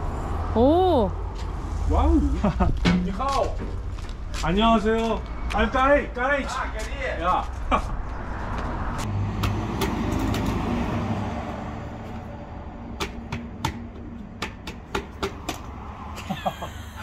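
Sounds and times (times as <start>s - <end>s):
sharp clicks and taps on tyre valve: 13.0s - 15.8s.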